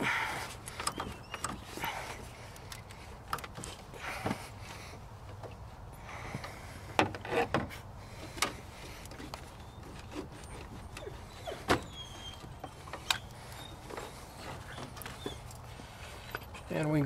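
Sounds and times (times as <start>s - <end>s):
faint squeaks: 0.1s - 3.2s, 7.2s - 16.9s.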